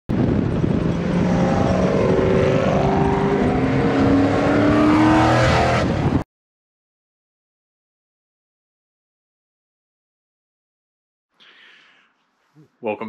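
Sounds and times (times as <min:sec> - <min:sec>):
car engine accelerating: 0:00.1 - 0:06.2.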